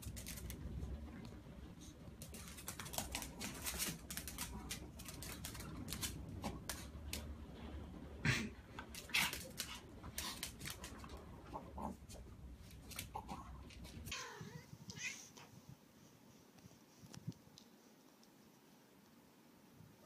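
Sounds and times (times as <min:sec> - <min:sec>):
claws clicking on tile floor: 0:00.0 - 0:00.6, 0:02.2 - 0:07.3, 0:08.8 - 0:11.2.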